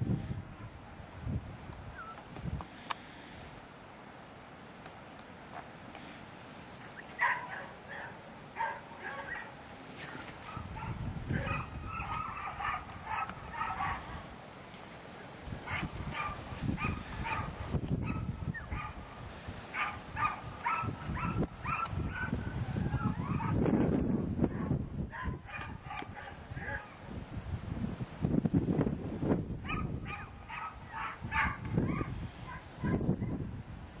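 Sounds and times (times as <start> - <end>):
dog yapping: 7.2 - 9.5, 10.5 - 14.1, 19.8 - 23.6, 29.7 - 33.0.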